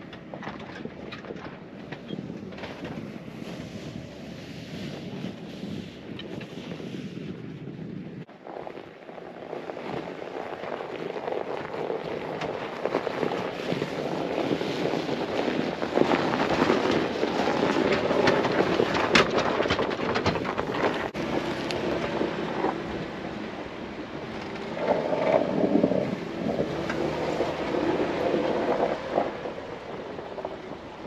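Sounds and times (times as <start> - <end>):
tyres on dirt trail: 0.0 - 31.0
wind rushing over microphone: 0.0 - 31.0
vehicle engine: 8.7 - 31.0.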